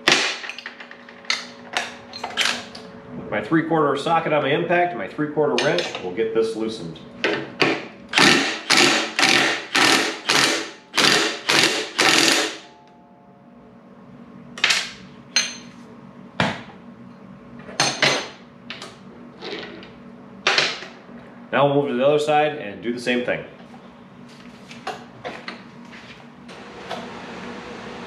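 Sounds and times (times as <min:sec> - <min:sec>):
impact wrench hammering: 0:07.3 - 0:12.8.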